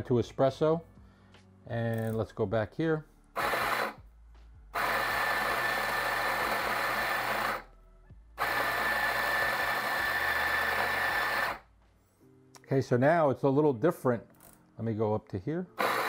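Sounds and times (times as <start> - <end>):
coffee grinder grinding beans: 3.4 - 4.0, 4.8 - 7.7, 8.4 - 11.6, 15.8 - 16.0.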